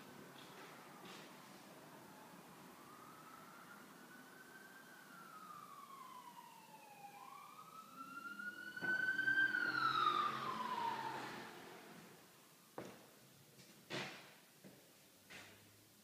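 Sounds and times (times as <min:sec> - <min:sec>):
emergency siren wailing: 0:00.1 - 0:12.2.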